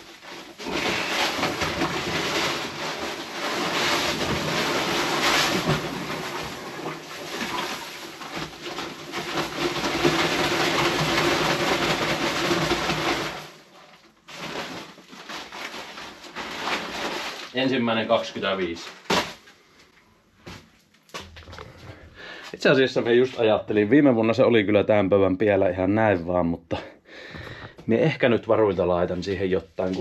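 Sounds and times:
paper sack rustling: 0.0 - 19.4.

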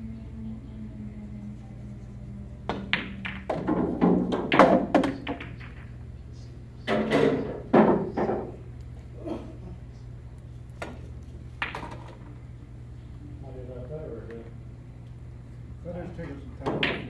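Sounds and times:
steady low hum: 0.0 - 17.0
cue striking ball: 2.7 - 6.0, 6.9 - 8.6, 10.8 - 12.4, 16.6 - 17.0
pool balls clacking: 2.7 - 6.1, 6.8 - 8.6, 10.7 - 12.4, 16.2 - 17.0.

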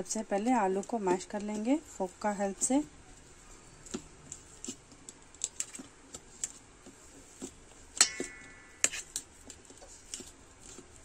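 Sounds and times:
ringing clink: 8.0 - 8.8.

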